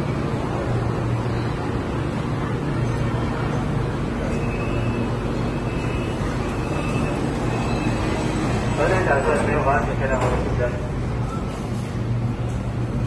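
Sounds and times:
train standing at platform humming: 0.0 - 13.0.

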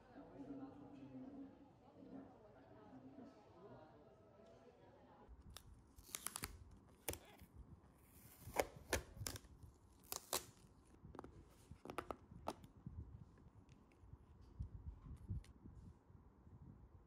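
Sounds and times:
plastic knife slitting seal tape: 5.5 - 7.4, 8.0 - 10.7
plastic lid clicks and crinkles: 8.3 - 12.7.

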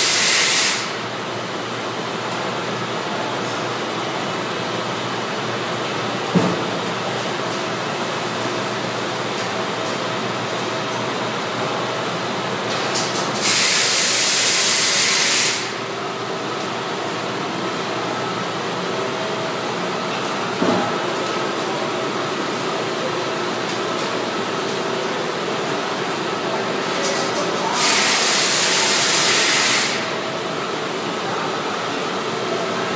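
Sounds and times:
loud hot-air hiss: 0.0 - 1.1, 13.3 - 15.9, 27.7 - 30.3.

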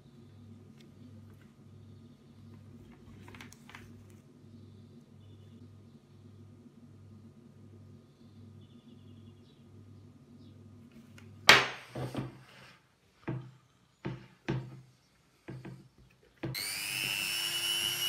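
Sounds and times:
power drill whining: 16.5 - 18.0.

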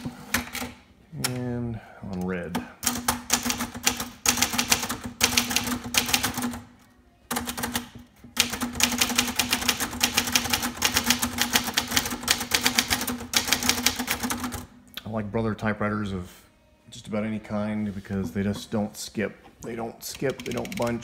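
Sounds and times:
manual typewriter typing: 2.8 - 6.6, 7.3 - 14.7, 20.1 - 21.0.

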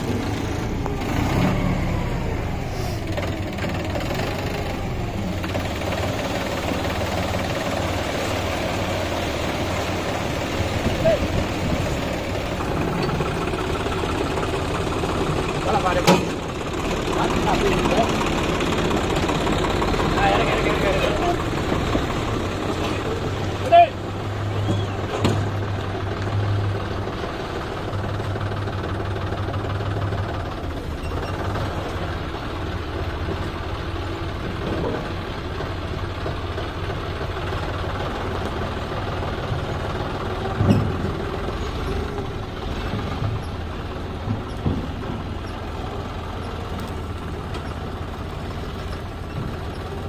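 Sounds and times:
tractor diesel engine running: 0.0 - 50.0.

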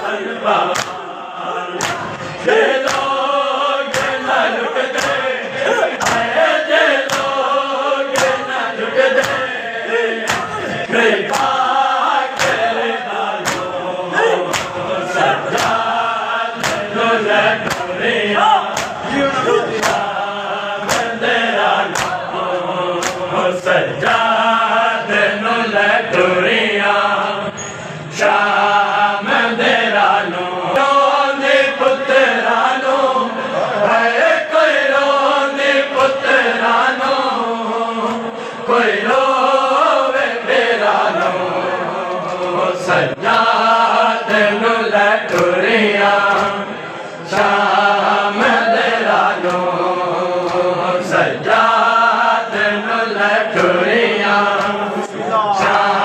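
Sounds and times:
men chanting a lament: 0.0 - 56.0
hands slapping chests: 0.7 - 1.0, 1.8 - 3.3, 3.9 - 6.4, 7.0 - 7.4, 8.1 - 8.5, 9.1 - 9.5, 10.2 - 11.7, 12.3 - 12.8, 13.4 - 16.0, 16.6 - 17.0, 17.6 - 18.0, 18.6 - 20.1, 20.8 - 22.4, 23.0 - 23.4, 36.0 - 36.2, 42.1 - 42.6, 45.2 - 45.6, 46.3 - 46.6, 47.3 - 47.7, 49.3 - 49.7, 50.4 - 50.7, 54.5 - 55.9.

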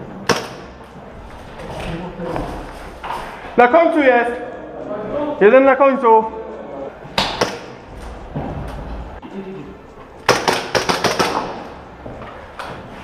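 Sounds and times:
airsoft gunshots: 0.2 - 0.8, 10.2 - 11.6.

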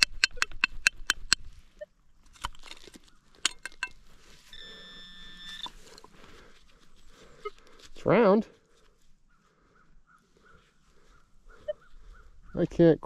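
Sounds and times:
sharp clicks and knocks: 0.0 - 1.5, 2.3 - 4.0
metal detector tone: 0.0 - 1.9, 3.4 - 6.2.

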